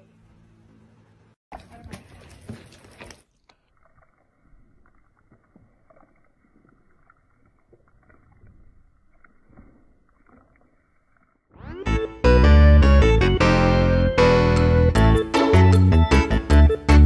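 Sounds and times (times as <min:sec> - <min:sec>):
horse lips clicking and rustling: 0:01.5 - 0:11.5.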